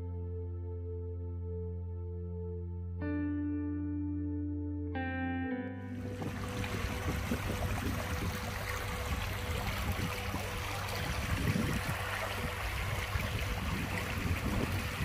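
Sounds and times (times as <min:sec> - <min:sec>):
river rippling over stones: 0:06.1 - 0:15.0.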